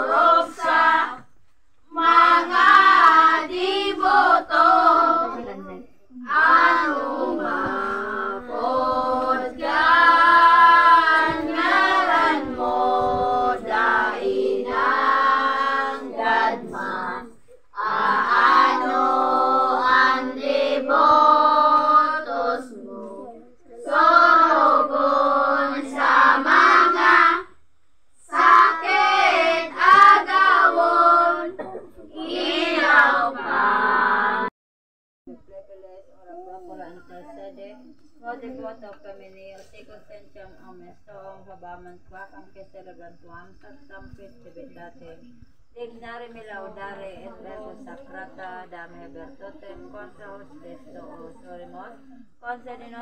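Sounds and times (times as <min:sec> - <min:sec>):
children singing a hymn: 0:00.0 - 0:27.5, 0:28.2 - 0:34.5.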